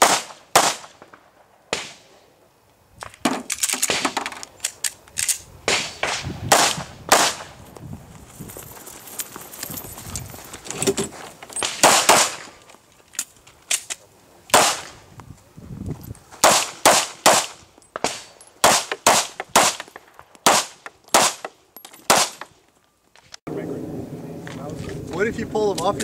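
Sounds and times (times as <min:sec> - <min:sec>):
pistol shots: 0:00.0 - 0:02.1, 0:05.6 - 0:07.6, 0:11.6 - 0:12.5, 0:14.5 - 0:15.0, 0:16.4 - 0:21.5, 0:22.1 - 0:22.4.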